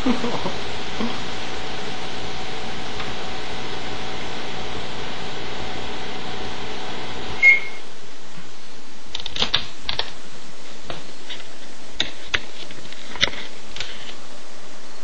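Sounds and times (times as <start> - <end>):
microwave oven hum: 0.0 - 7.9
short high beep: 7.4 - 7.8.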